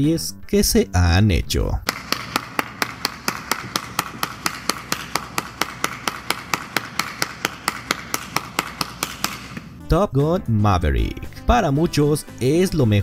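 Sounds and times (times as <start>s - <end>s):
person clapping hands: 1.9s - 9.8s.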